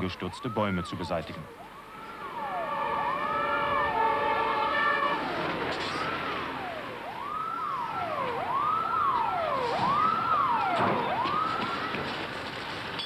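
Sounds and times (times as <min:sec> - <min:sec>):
fire engine siren wailing: 0:00.0 - 0:12.9.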